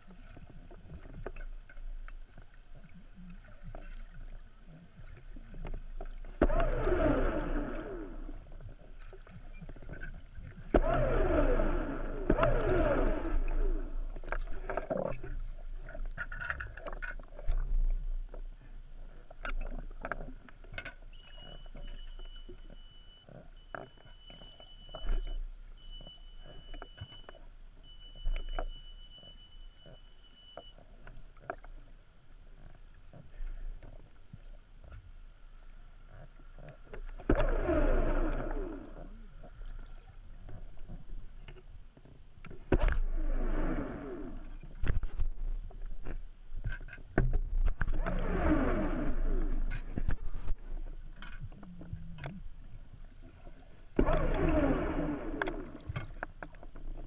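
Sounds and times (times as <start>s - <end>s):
underwater clicks and crackles: 0.0s - 57.0s
scuba bubbles gurgling: 5.0s - 16.0s, 37.2s - 40.8s.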